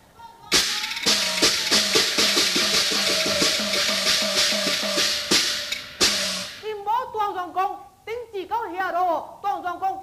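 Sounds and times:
loud cymbal crash: 0.5 - 6.8
gong and cymbal strokes: 1.0 - 6.7.

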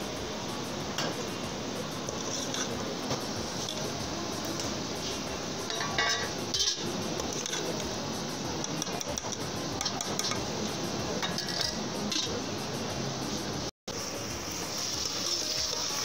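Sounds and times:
steady background hiss: 0.0 - 16.0
ladle clinking and scraping pot: 2.0 - 2.8, 5.7 - 7.8, 8.6 - 12.4.

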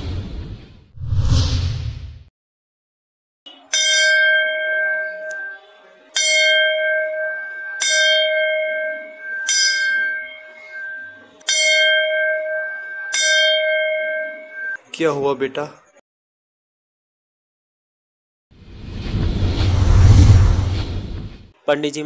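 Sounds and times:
brass bell ringing: 3.7 - 14.8.

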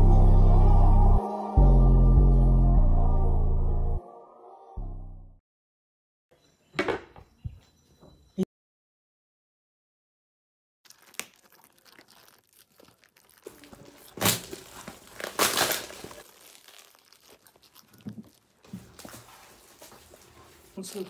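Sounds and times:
plastic bag crinkling and tearing: 10.9 - 19.8.

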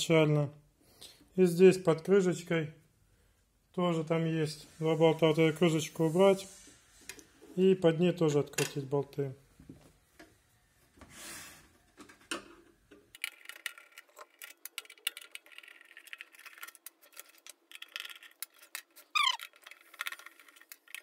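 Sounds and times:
squeak falling in pitch: 19.1 - 19.5.

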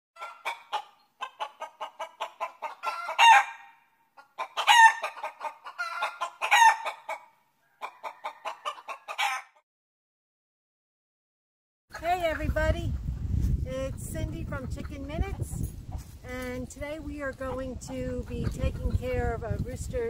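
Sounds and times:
chicken cackling: 0.2 - 9.6.

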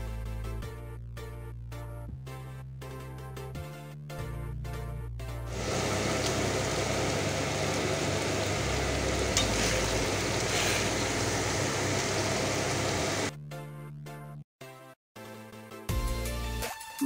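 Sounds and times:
onions sizzling in oil: 5.5 - 13.3.

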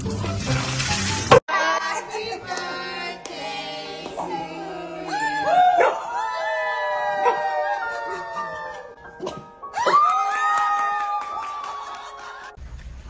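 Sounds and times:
background music: 0.0 - 1.4, 2.8 - 12.6
dog howling: 5.0 - 8.9.

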